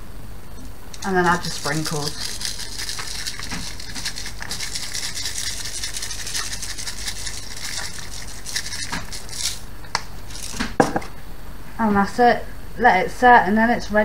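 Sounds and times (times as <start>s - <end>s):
sprinkles rattling in plastic shaker: 1.0s - 10.6s.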